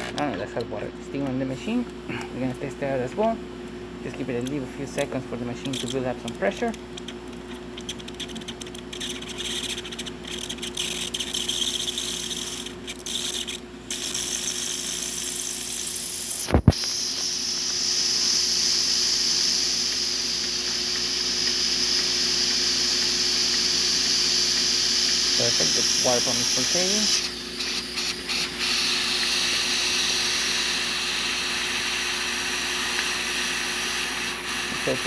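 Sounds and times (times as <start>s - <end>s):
steam wand hissing: 11.4s - 35.0s.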